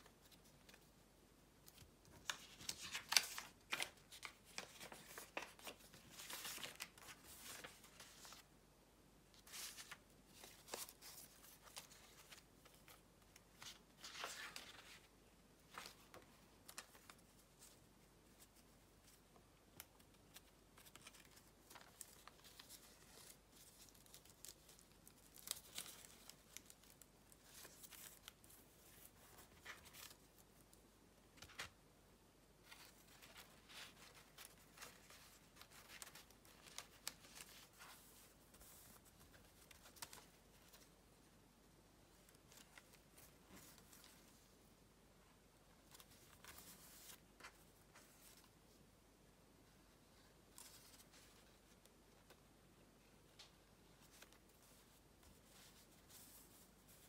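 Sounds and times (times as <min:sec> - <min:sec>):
paper rustling and crinkling: 0:01.6 - 0:08.5, 0:09.4 - 0:31.8, 0:32.6 - 0:41.1, 0:42.0 - 0:44.5, 0:45.8 - 0:48.6.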